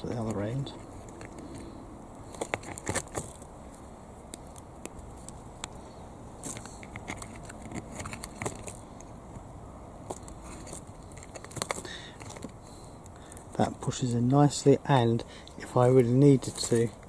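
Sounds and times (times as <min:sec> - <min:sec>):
clicks and scrapes of plastic parts: 0:00.1 - 0:03.5, 0:06.4 - 0:09.4, 0:10.0 - 0:13.6, 0:15.4 - 0:17.0.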